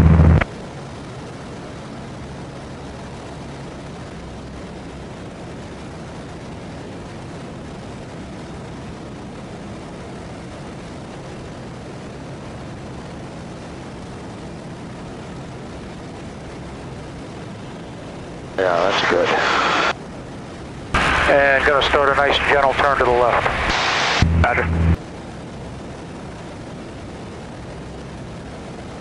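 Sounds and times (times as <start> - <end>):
aircraft engine droning: 0.0 - 29.0
steady hiss: 18.6 - 20.0, 20.9 - 25.0.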